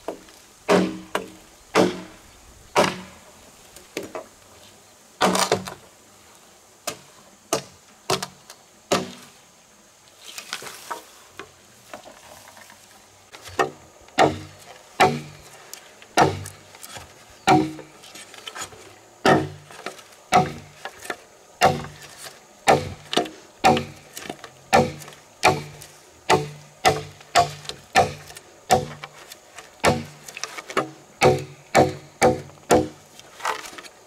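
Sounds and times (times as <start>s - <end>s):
chopping thuds: 0.1s - 3.2s, 6.9s - 9.2s, 13.5s - 15.4s, 16.2s - 17.9s, 19.2s - 21.0s, 21.6s - 33.0s.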